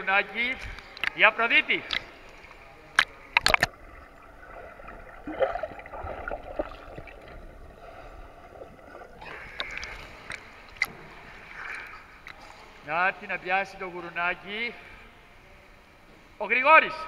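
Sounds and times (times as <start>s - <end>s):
water splashing: 0.8s - 12.8s
sharp knocks underwater: 2.9s - 7.6s.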